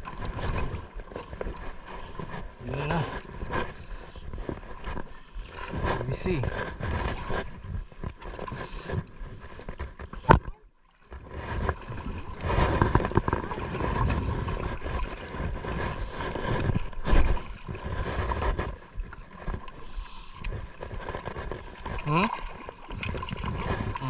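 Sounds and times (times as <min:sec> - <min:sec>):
water splashing against boat: 0:00.0 - 0:24.0
wind noise on microphone: 0:11.3 - 0:19.6, 0:22.8 - 0:24.0.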